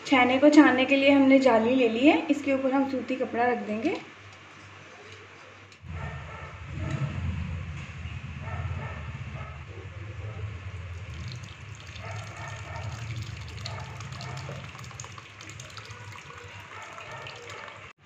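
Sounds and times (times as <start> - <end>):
steady low hum: 0.0 - 16.9
liquid pouring and splashing: 10.9 - 18.0.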